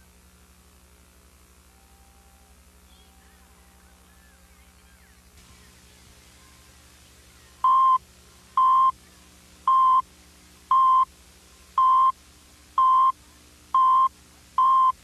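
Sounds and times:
short steady-tone beeps: 7.6 - 8.0, 8.6 - 9.0, 9.7 - 10.0, 10.7 - 11.1, 11.8 - 12.2, 12.8 - 13.2, 13.8 - 15.0.

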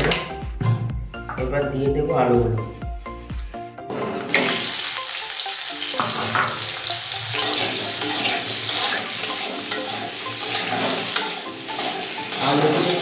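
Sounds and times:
potatoes sizzling in oil: 4.1 - 13.0
spatula scraping a pan: 7.1 - 13.0.

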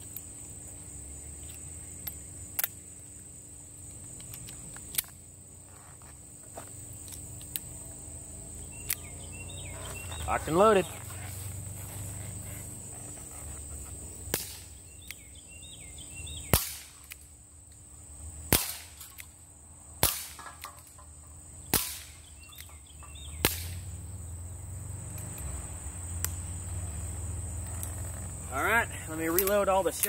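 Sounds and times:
air pistol shots cracking: 14.3 - 14.8, 16.4 - 17.2, 18.5 - 19.2, 20.0 - 20.8, 21.7 - 22.7, 23.4 - 23.8.

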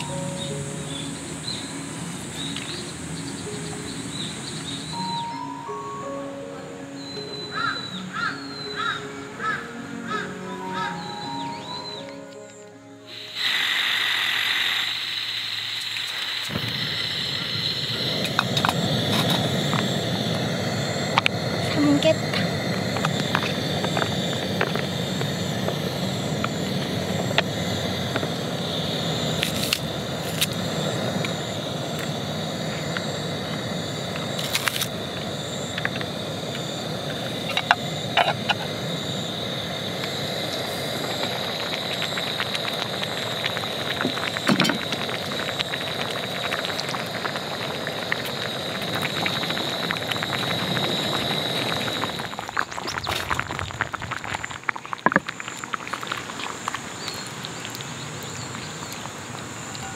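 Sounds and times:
gas burner hiss: 0.0 - 5.4, 13.1 - 59.9
soup crackling and bubbling: 13.1 - 59.8
soup pouring from pouch: 41.2 - 57.7.

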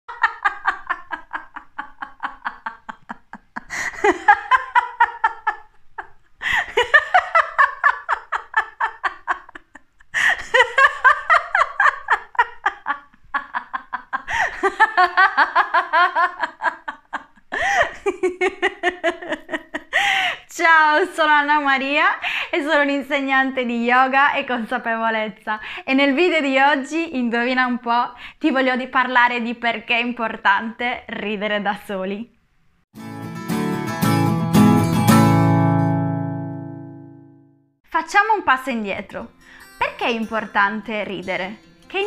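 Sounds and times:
woman laughing: 0.1 - 20.4
short breaths: 39.4 - 39.8.

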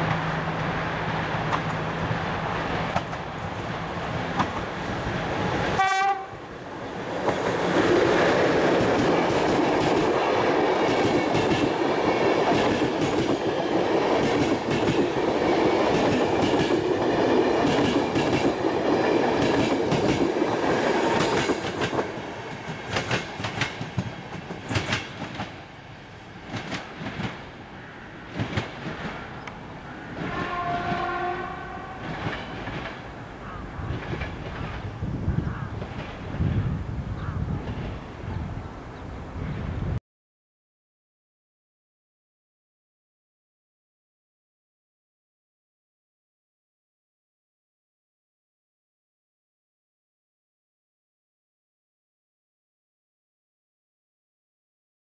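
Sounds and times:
train rumbling past: 0.0 - 40.0
train horn: 5.7 - 6.5, 30.1 - 32.3.

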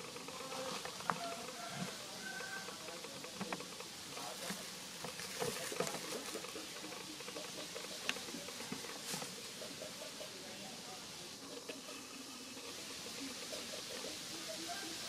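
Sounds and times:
background hiss: 0.0 - 15.0
dry leaves crackling underfoot: 7.5 - 10.0.

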